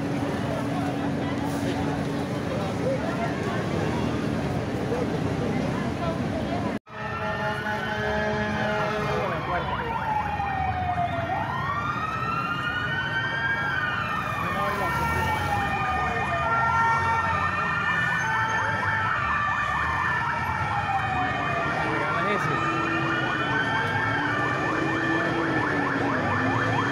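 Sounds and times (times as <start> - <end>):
siren wailing: 6.9 - 26.9.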